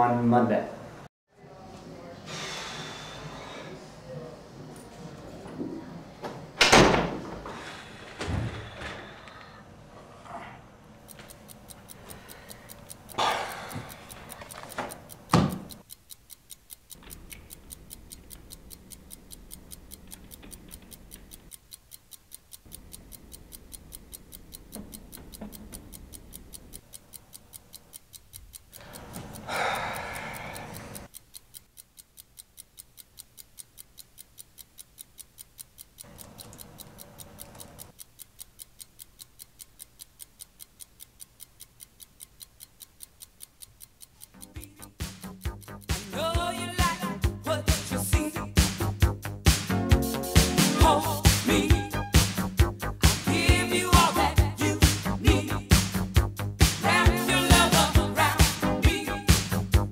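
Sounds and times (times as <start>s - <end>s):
clock ticking: 10.3s - 59.9s.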